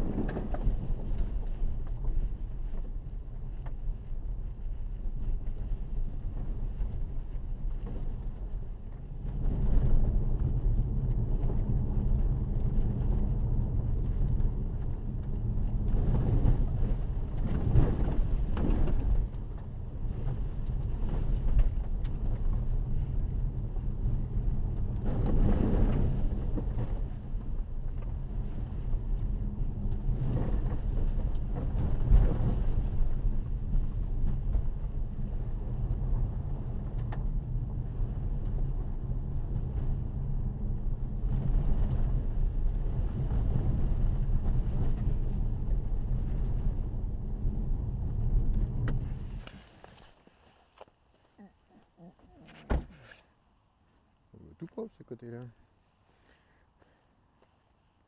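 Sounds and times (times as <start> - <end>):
diesel engine rumble: 0.0 - 53.2
tyre and road noise: 0.0 - 53.4.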